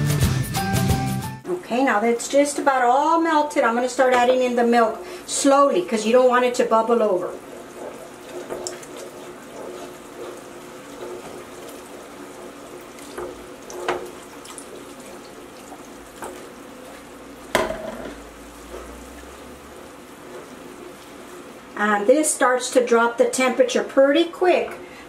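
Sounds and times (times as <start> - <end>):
milk pouring into a pot: 5.9 - 21.7.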